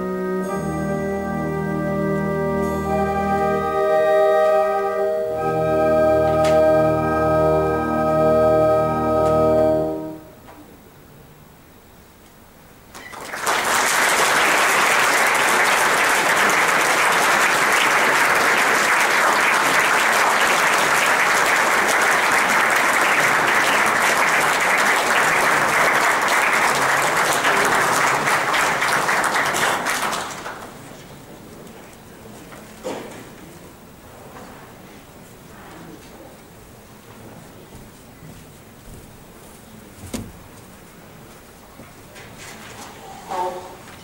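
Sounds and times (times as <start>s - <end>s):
audience applauding: 12.9s - 31.3s.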